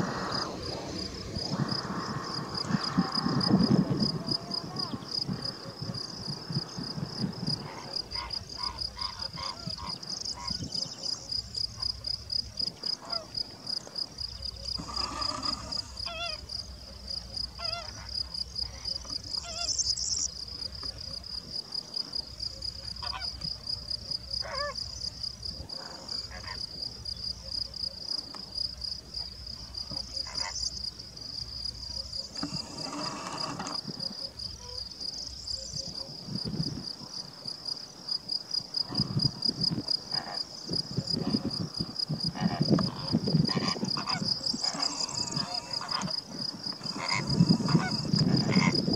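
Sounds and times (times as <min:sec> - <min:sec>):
insect chirring: 0:00.0 - 0:48.9
flamingos honking: 0:07.6 - 0:10.7, 0:14.8 - 0:16.4, 0:32.4 - 0:33.8, 0:42.4 - 0:48.8.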